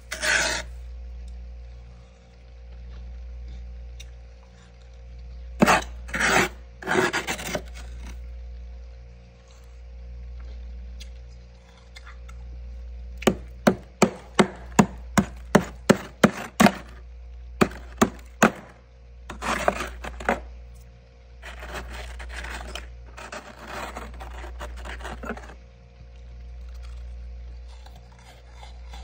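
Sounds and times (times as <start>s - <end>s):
frost scraping and crunching: 0.0s - 0.8s, 4.6s - 8.3s, 13.2s - 17.0s, 17.6s - 29.0s
low hum: 0.0s - 29.0s.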